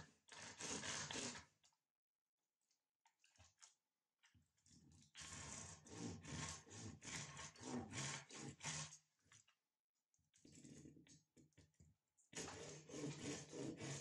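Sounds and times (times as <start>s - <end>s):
hand saw rasping through wood: 0.0s - 1.5s, 5.2s - 9.0s, 12.4s - 14.0s.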